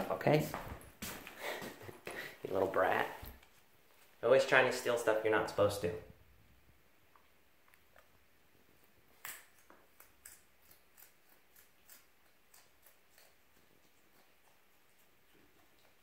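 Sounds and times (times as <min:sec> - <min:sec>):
fox crunching carrot: 0:07.1 - 0:16.0.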